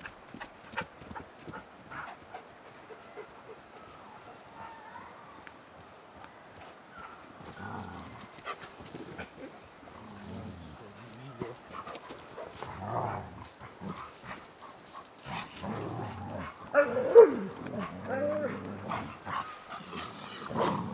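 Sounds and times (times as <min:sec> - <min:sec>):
dogs making low vocal sounds: 0:07.0 - 0:20.9.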